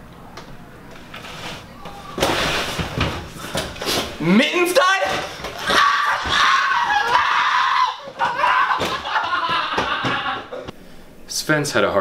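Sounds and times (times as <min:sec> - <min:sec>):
man wailing in anguish: 0:05.8 - 0:10.7.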